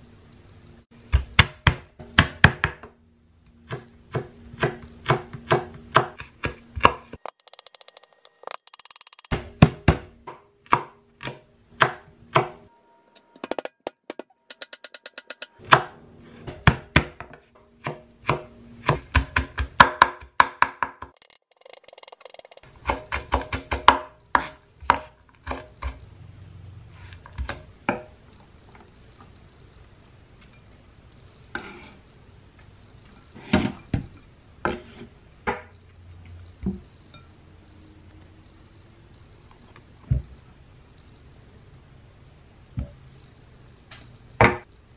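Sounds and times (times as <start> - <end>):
knife scraping wooden cutting board: 31.5 - 32.0.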